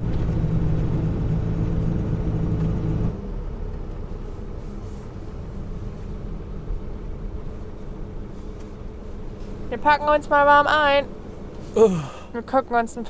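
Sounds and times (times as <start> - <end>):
road rumble: 0.0 - 13.0
van engine hum: 0.0 - 13.0.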